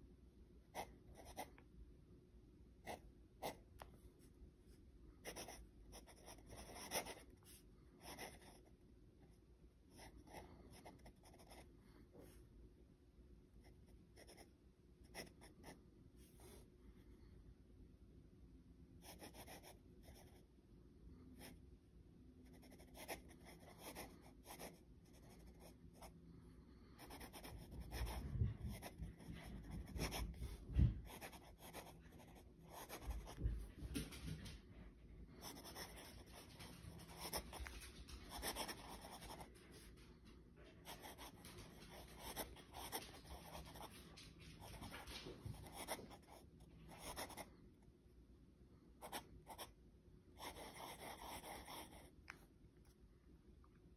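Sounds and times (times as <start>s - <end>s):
pen nib scratching on paper: 38.3s - 39.5s.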